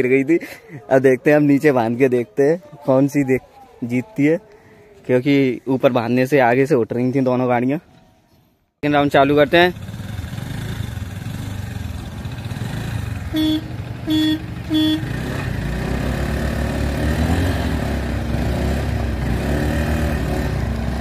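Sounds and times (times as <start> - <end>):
scooter engines revving: 9.2 - 21.0
horn short beeps: 13.2 - 15.1.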